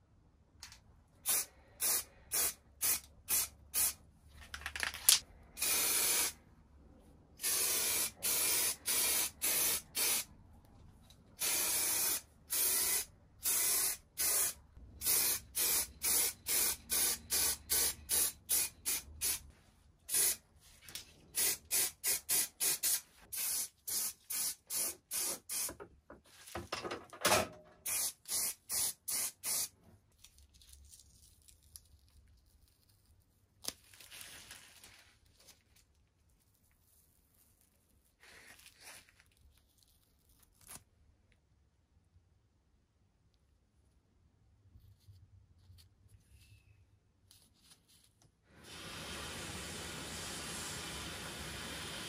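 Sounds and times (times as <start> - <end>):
spray paint can hissing: 1.2 - 4.0, 5.6 - 6.4, 7.4 - 10.3, 11.4 - 19.4, 20.1 - 20.4, 21.4 - 25.7, 27.8 - 29.7.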